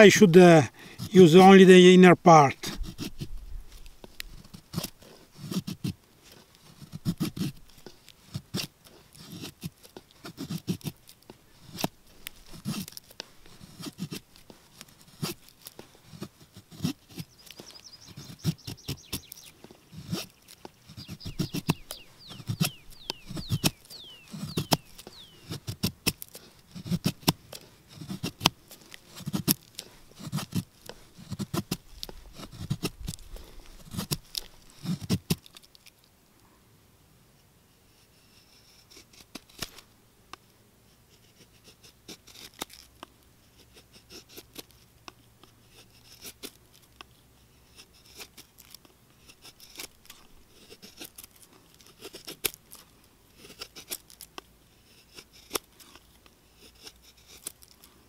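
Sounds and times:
knife scraping wood: 2.5 - 36.0, 37.8 - 39.9, 40.9 - 58.0
small bird chirping: 17.1 - 25.6.

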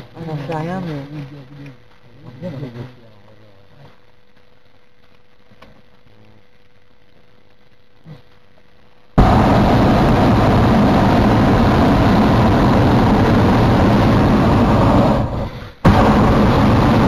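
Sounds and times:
propane burner blast: 9.1 - 17.0.

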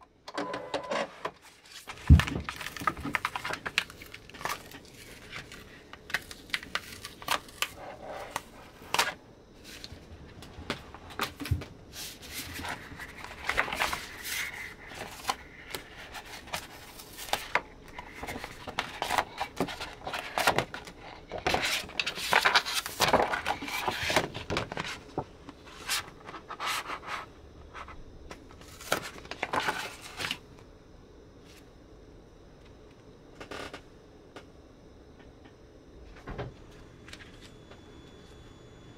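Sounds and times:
crackling and rustling plastic: 1.4 - 27.2, 27.8 - 30.4.

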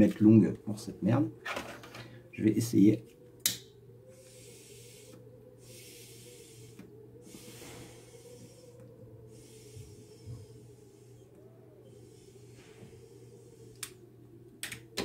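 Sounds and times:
airy hissing pipe draws: 4.1 - 14.0.

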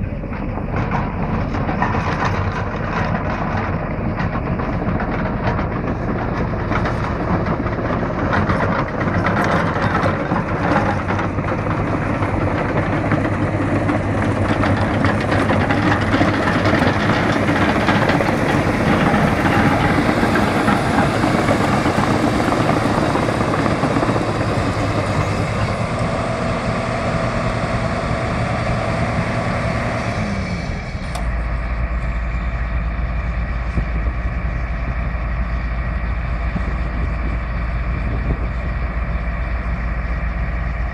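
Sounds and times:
steel tracks clanking: 0.0 - 26.6
deep low rumble: 0.0 - 40.9
diesel engine under load: 0.0 - 40.9.

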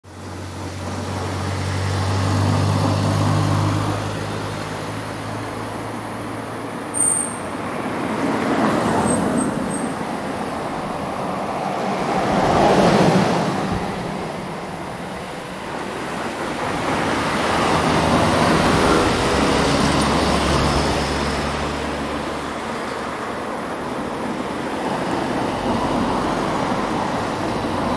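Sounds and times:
passing traffic: 0.0 - 27.9
high squeak: 6.9 - 7.6, 8.2 - 10.1.

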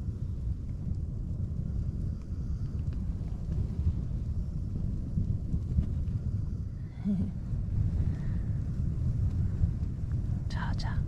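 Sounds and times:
strong wind gusting: 0.0 - 11.0
faint ticks: 0.4 - 6.6.

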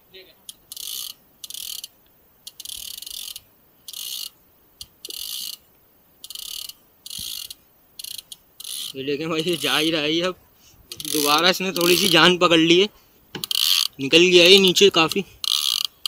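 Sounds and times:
fishing reel drag buzzing: 0.5 - 4.4, 5.0 - 5.6, 6.2 - 10.0, 10.9 - 12.4, 13.4 - 16.0.

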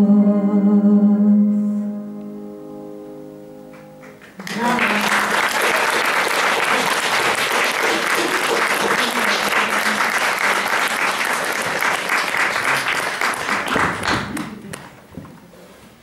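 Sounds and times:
audience applauding: 3.8 - 15.0.

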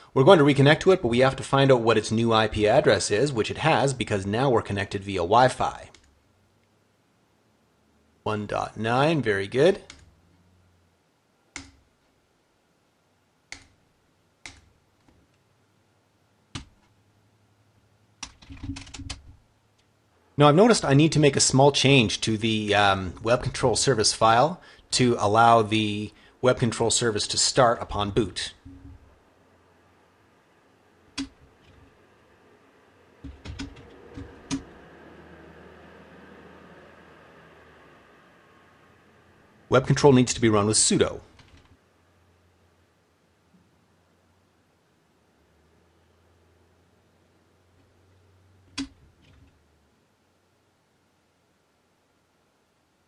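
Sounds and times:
computer mouse clicks: 13.5 - 13.8, 14.4 - 15.4
computer keyboard keys clicking: 18.2 - 19.3, 33.2 - 34.6.

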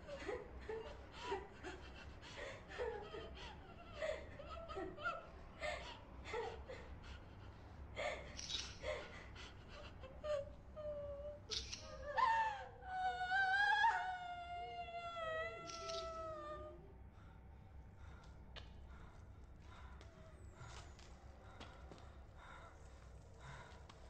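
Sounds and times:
woman sobbing and whimpering: 0.0 - 17.1
woman wailing: 10.4 - 16.9.

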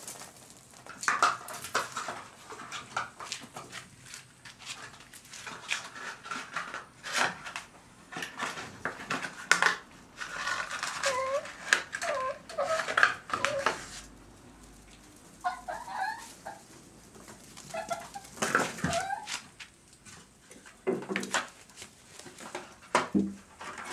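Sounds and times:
pups whimpering and chirping: 10.9 - 13.9, 15.4 - 16.7, 17.6 - 19.6.

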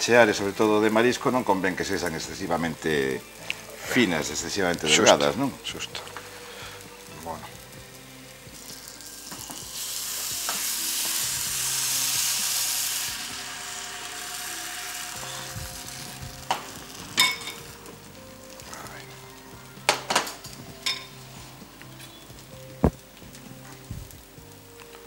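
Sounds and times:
batter sizzling in frying pan: 0.0 - 25.0
utensils clinking against pan: 15.3 - 17.7, 19.9 - 21.2.

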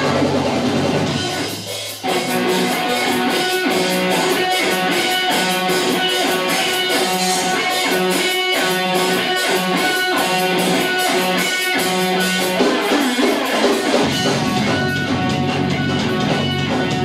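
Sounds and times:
electric guitar riff: 0.0 - 17.0
heavy low end bass: 14.1 - 17.0.

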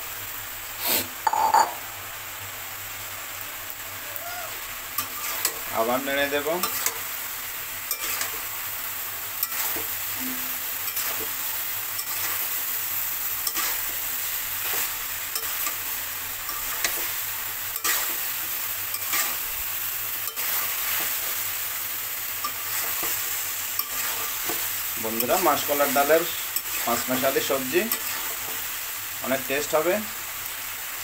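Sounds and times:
vegetables sizzling in a wok: 0.0 - 31.0
metal spatula scraping a wok: 5.0 - 5.7, 6.6 - 7.0, 7.9 - 8.5, 9.4 - 11.4, 13.4 - 17.1, 17.7 - 18.3, 18.9 - 19.5, 22.4 - 25.7, 27.9 - 28.6.

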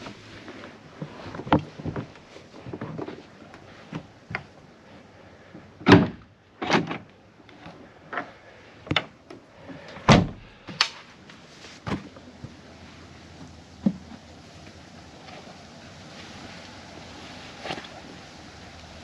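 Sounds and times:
soft shuffling: 0.0 - 5.8, 10.5 - 19.0
thumps and knocks in truck bed: 10.1 - 10.5.

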